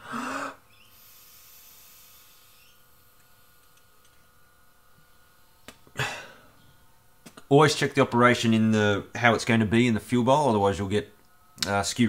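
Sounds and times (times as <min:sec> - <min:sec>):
faint air hiss: 0:00.0 - 0:09.3.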